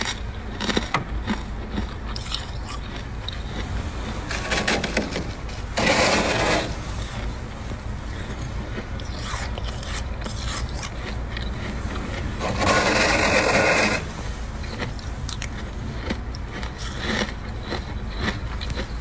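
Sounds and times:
freezer frost scraping: 0.0s - 19.0s
ice crackling: 3.3s - 7.4s, 11.4s - 14.2s.

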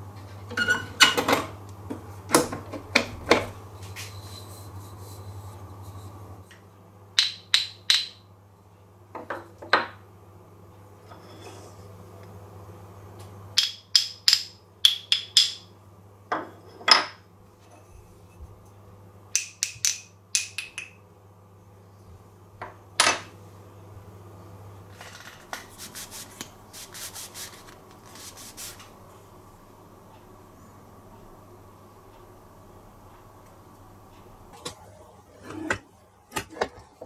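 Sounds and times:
cloth rubbing on wooden rod: 25.7s - 28.9s.

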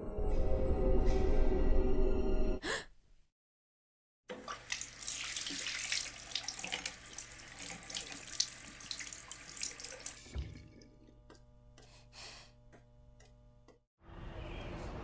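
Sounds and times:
water splashing on face: 4.4s - 10.9s
tap running into sink: 10.0s - 10.9s.

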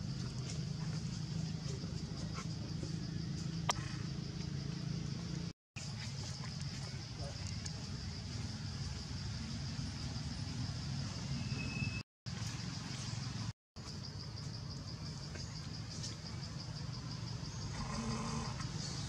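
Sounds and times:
insects chirring trill: 0.0s - 19.0s.

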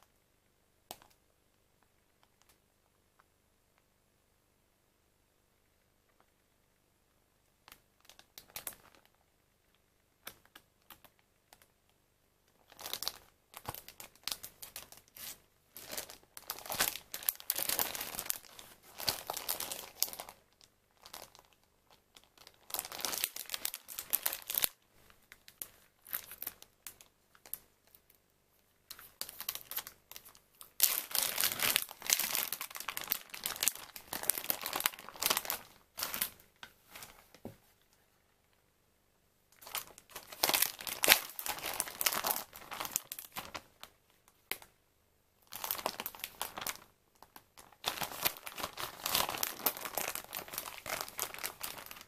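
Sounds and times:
plastic packaging crinkling: 8.0s - 9.2s, 12.6s - 28.1s, 28.9s - 37.3s, 39.6s - 43.9s, 45.4s - 52.0s.

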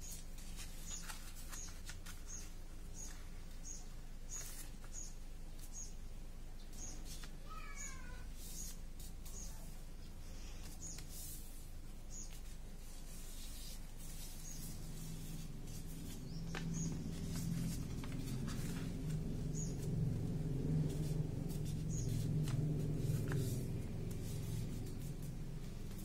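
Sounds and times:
paper rustling and crinkling: 0.0s - 3.4s, 4.3s - 5.7s, 10.4s - 26.0s.

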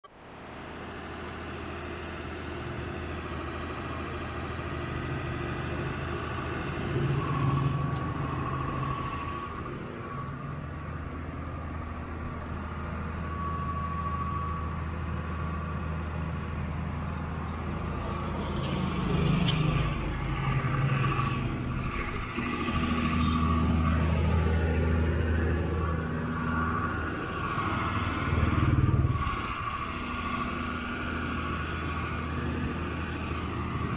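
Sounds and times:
street traffic: 0.0s - 33.9s
motorcycle passing: 17.8s - 33.9s.

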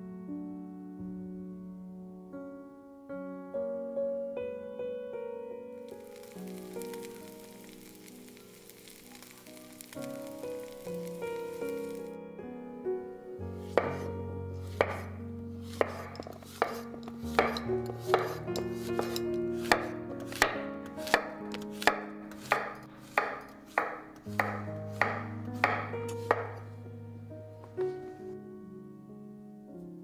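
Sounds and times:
background music: 5.2s - 30.0s
knife chopping on wooden board: 13.7s - 14.1s, 14.7s - 15.1s, 15.7s - 26.6s.

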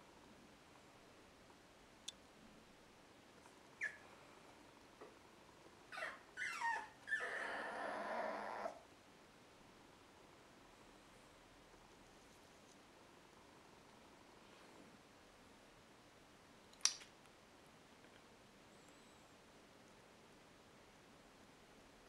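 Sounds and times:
puppy yelping: 3.8s - 4.0s, 5.9s - 8.8s.

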